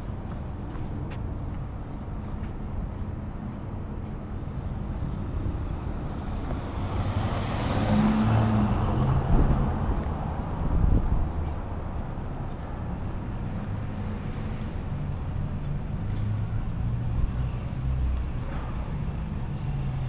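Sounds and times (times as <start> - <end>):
low rumble of traffic: 0.0 - 20.0
vehicle passing close: 6.4 - 11.2.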